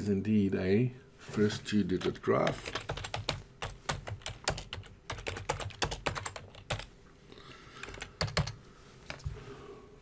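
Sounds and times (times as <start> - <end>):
computer keyboard typing: 2.0 - 6.9, 7.8 - 8.6.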